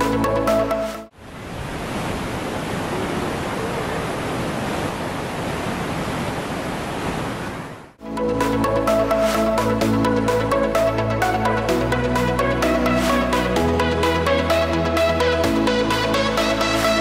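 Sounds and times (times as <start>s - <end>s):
waterfall roaring: 1.2s - 8.0s.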